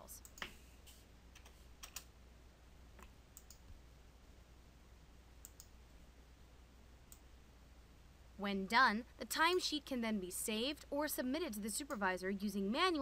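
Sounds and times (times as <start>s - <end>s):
mouse and keyboard clicks: 3.0s - 3.6s, 5.4s - 5.7s.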